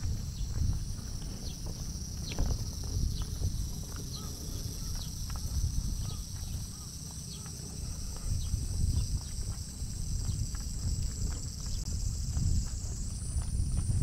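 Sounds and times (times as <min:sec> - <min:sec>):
footsteps: 0:00.0 - 0:14.0
insects droning: 0:00.0 - 0:14.0.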